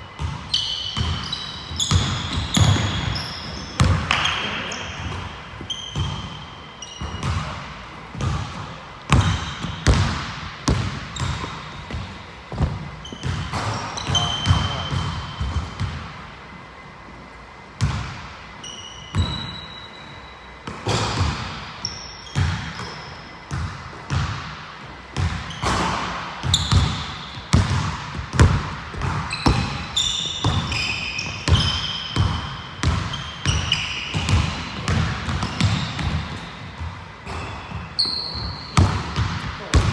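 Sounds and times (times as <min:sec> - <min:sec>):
sneakers squeaking on court: 0:00.0 - 0:16.8, 0:17.5 - 0:39.9
basketball bouncing on hardwood floor: 0:08.1 - 0:16.0, 0:25.2 - 0:30.8, 0:31.5 - 0:37.5, 0:38.8 - 0:39.9.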